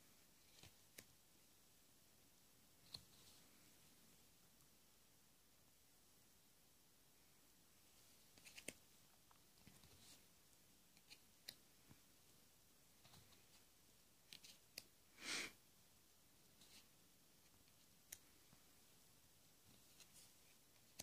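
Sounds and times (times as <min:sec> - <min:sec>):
cards clicking and tapping: 0:08.3 - 0:08.8.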